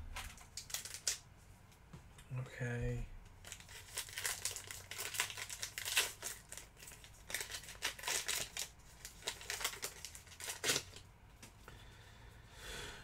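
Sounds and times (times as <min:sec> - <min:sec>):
cards and packaging rustling: 0:00.2 - 0:01.2, 0:03.4 - 0:11.5.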